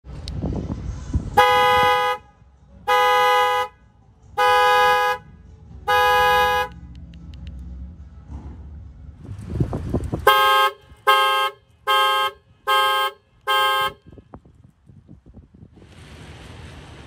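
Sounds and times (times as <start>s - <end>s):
car alarm horn honks: 1.4s - 3.8s, 4.4s - 6.8s, 10.2s - 14.2s.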